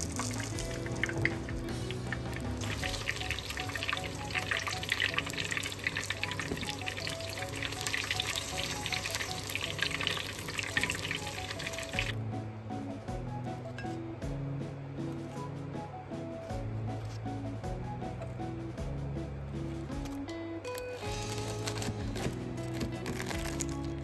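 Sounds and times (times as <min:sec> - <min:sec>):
spring rolls sizzling in oil: 0:00.0 - 0:12.2
background music: 0:00.0 - 0:24.0.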